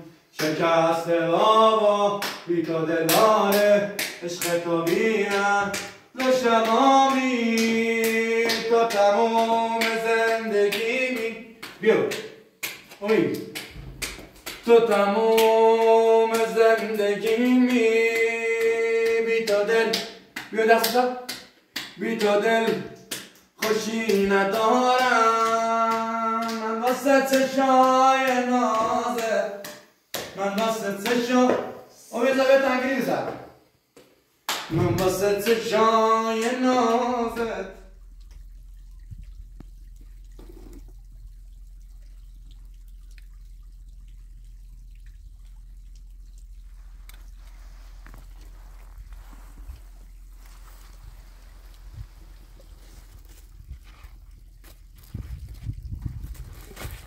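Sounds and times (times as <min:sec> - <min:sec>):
man singing slow melody: 0:00.4 - 0:11.5, 0:14.7 - 0:21.1, 0:23.6 - 0:29.6.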